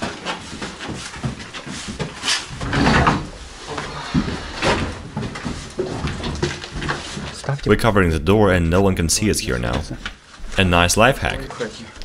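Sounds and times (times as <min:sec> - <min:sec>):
wooden furniture knocking and scraping: 0:00.0 - 0:07.4.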